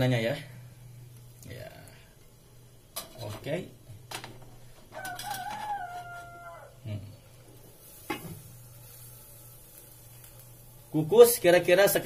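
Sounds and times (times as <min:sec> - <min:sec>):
rooster crowing: 0:04.9 - 0:06.9.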